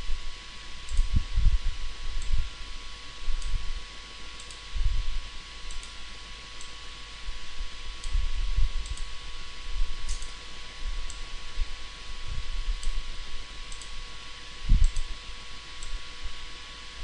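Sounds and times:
low electrical hum: 0.0s - 17.0s
computer mouse clicking: 4.4s - 4.6s, 5.7s - 6.0s, 8.8s - 9.1s, 12.8s - 13.0s, 13.7s - 14.0s, 14.8s - 15.1s.

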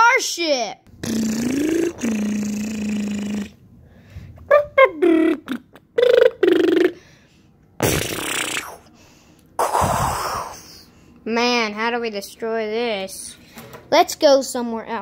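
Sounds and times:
vocal blasts: 0.9s - 3.7s, 4.4s - 7.2s, 7.8s - 9.0s, 9.6s - 10.9s
person humming drone: 1.0s - 3.6s
vocal hissing bursts: 1.0s - 3.6s, 7.8s - 9.0s, 9.6s - 10.9s.

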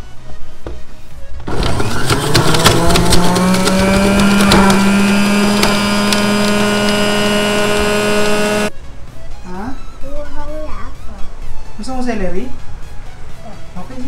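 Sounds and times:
juicer motor running: 1.4s - 8.7s.

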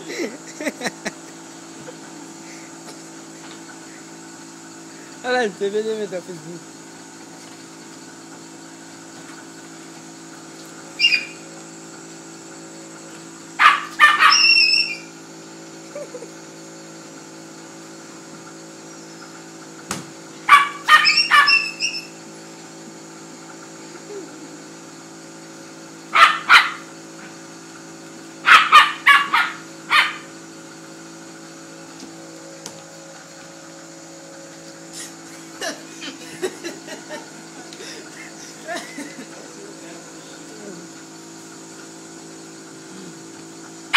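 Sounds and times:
steady background hum: 0.0s - 43.9s
small dog barking and yipping: 11.0s - 11.4s, 13.6s - 15.1s, 20.4s - 22.2s, 26.1s - 27.0s, 28.4s - 30.3s.

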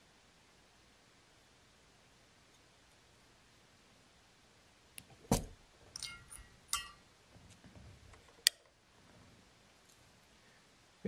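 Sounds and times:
metallic clinks: 6.0s - 7.0s.

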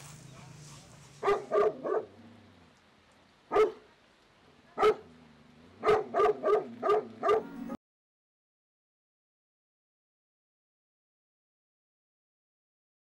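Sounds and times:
dog barking: 0.2s - 2.2s, 3.5s - 3.9s, 4.7s - 5.1s, 5.8s - 7.6s.

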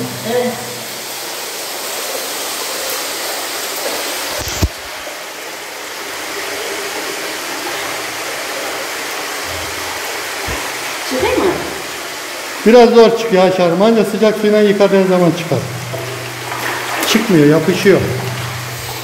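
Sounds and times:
water running from hose: 0.0s - 19.0s
short thump: 10.4s - 10.8s.

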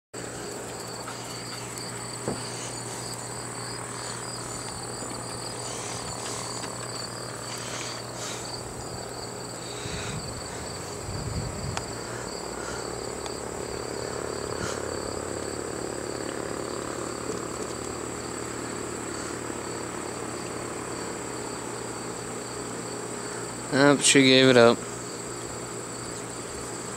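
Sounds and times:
insects chirping: 0.2s - 26.9s
low rumble: 9.8s - 12.1s.

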